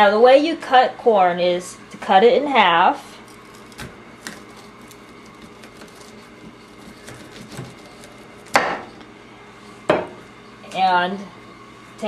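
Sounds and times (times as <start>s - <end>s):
knife chopping through corn cob: 3.3s - 8.9s.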